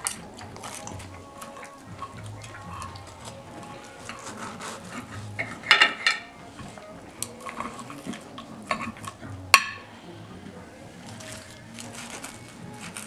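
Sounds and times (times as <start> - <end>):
knife and fork scraping a plate: 0.0 - 9.7, 11.1 - 13.0.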